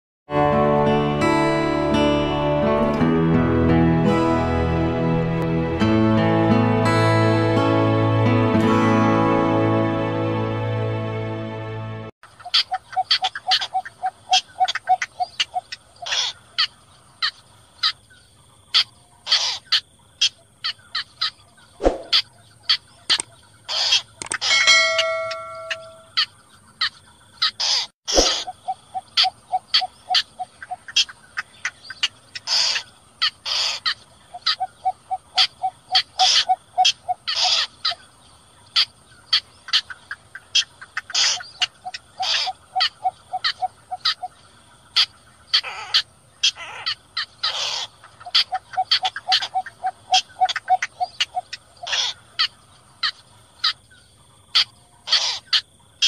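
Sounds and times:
rapid low pulsing bird notes: 21.5 - 26.8
bird calls short and sharp: 21.8 - 22.3, 27.6 - 28.6.

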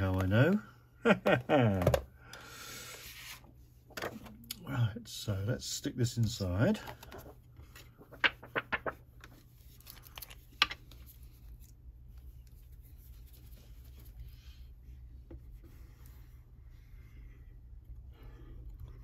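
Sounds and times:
cardstock rustling: 6.9 - 11.7.

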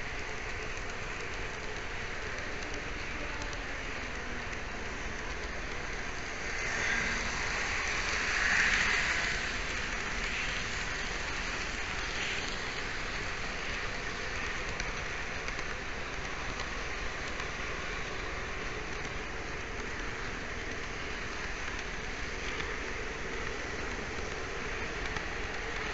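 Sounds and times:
model train running hiss: 0.0 - 25.9.

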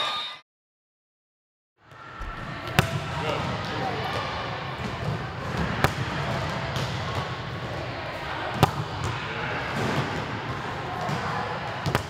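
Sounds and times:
gym background noise: 2.0 - 5.7.

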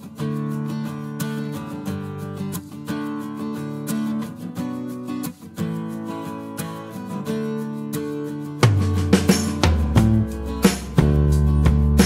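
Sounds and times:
instrumental music with held notes: 0.0 - 12.0
sharp drum-like hits: 8.6 - 12.0
deep bass note: 8.8 - 10.4.

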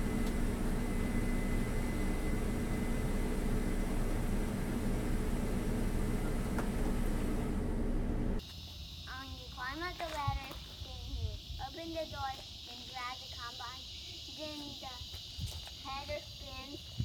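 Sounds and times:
combine harvester droning: 0.0 - 8.4.

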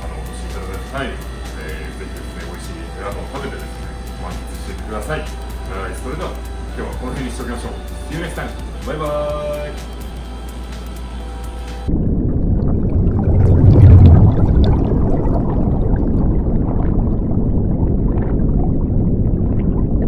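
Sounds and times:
underwater bubbling and rumbling: 11.9 - 20.0.

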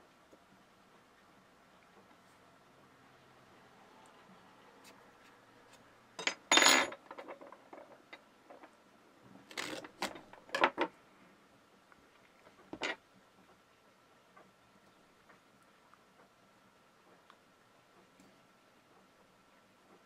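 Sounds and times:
metal tool clattering on wood: 6.2 - 8.7, 9.6 - 10.9, 12.7 - 13.0
tools clicking and clattering: 6.2 - 8.8.

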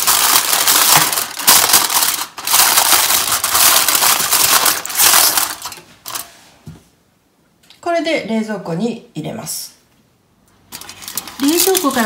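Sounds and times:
aluminium foil crinkling: 0.0 - 6.3, 10.7 - 12.0.

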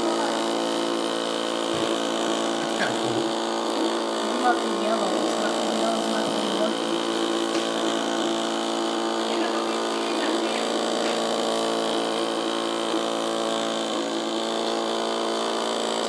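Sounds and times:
small motor buzzing: 0.0 - 16.0.

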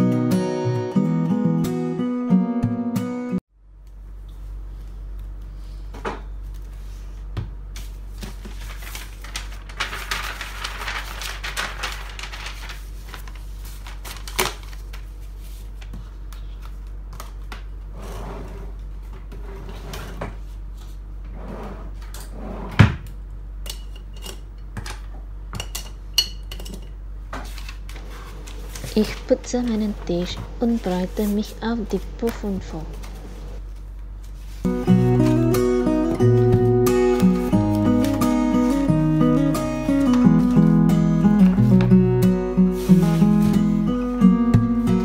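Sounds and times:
paper rustling: 7.8 - 17.5, 27.4 - 41.9, 42.6 - 45.0.

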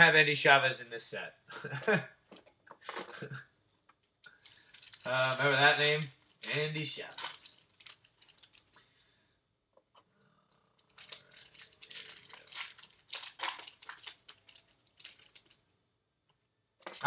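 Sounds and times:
foil wrapper tearing and crinkling: 4.3 - 8.8, 10.8 - 15.6.

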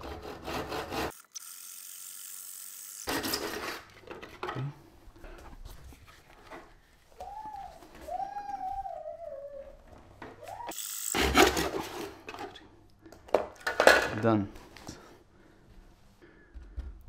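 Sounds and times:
hand saw sawing wood: 0.0 - 1.2, 11.1 - 12.2.

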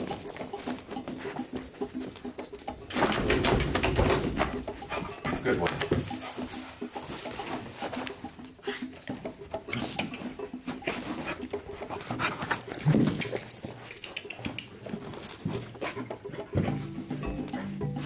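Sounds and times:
dog sniffing: 4.3 - 18.0.

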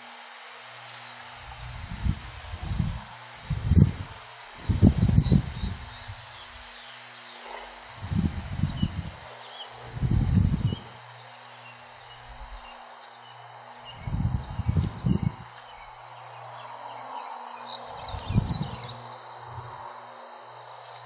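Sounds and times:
insect chirps: 0.0 - 21.0
wind rumbling on microphone: 1.4 - 6.8, 7.4 - 11.1, 12.1 - 12.8, 13.8 - 16.0, 17.8 - 20.0
bird chirps: 4.6 - 19.8.

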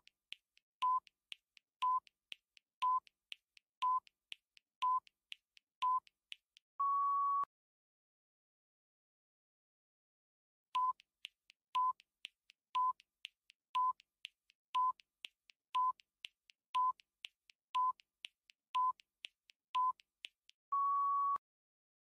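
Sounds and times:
soft fast ticking: 0.0 - 6.6, 10.8 - 20.6.

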